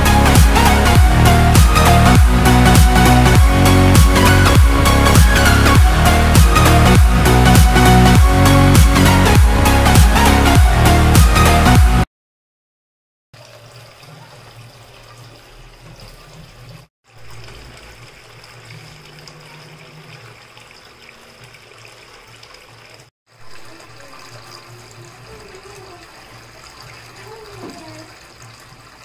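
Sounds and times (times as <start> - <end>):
small fountain water trickling: 13.4 - 29.0.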